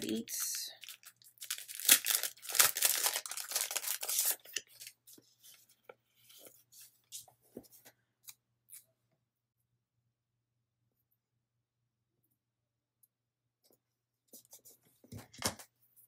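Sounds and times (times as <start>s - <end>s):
paper and plastic rustling: 0.8s - 6.9s.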